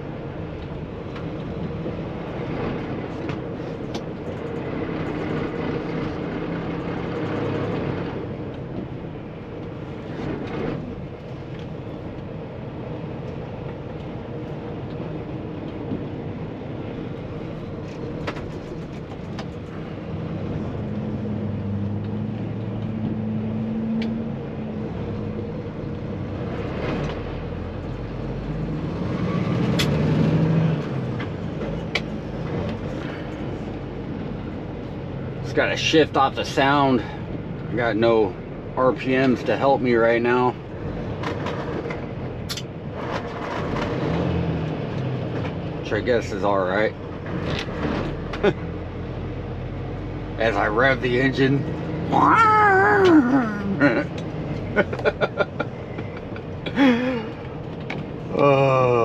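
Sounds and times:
road and tyre noise: 0.0 - 59.0
diesel truck engine running: 30.8 - 59.0.

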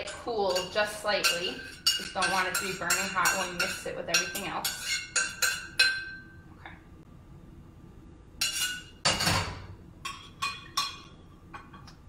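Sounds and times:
saucepan clinking and ringing: 0.5 - 6.4.

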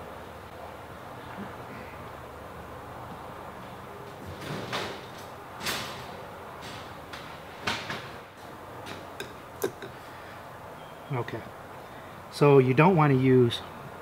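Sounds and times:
steady background hiss: 0.0 - 14.0
tools and parts clicking: 8.9 - 10.0.

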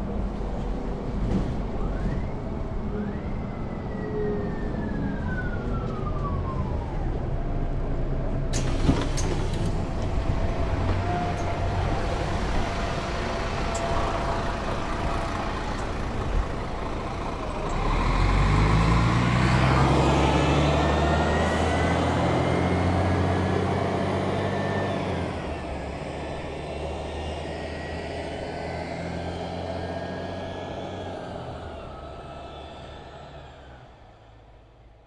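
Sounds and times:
bus diesel engine idling and revving: 7.2 - 35.0.

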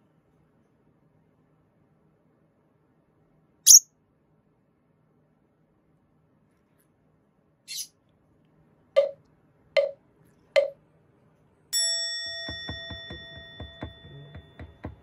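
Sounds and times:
bell-like ding: 11.8 - 14.7
bouncy music with steady beat: 12.5 - 15.0.

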